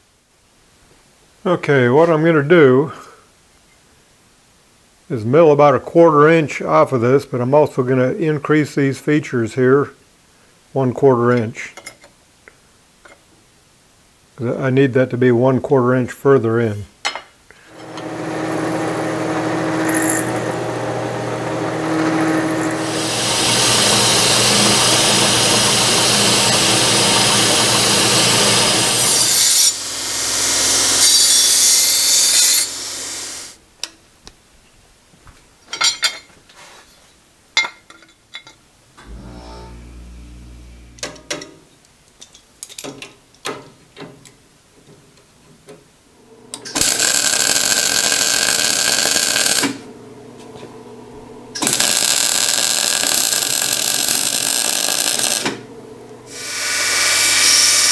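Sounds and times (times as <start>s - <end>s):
end mill cutting metal: 17.7s - 33.6s, 39.0s - 41.3s, 51.6s - 55.6s, 56.2s - 57.9s
mig welding bursts: 17.7s - 33.6s, 46.6s - 49.8s, 51.6s - 55.6s, 56.3s - 57.9s
clicks and knocks of handled parts: 41.0s - 45.8s.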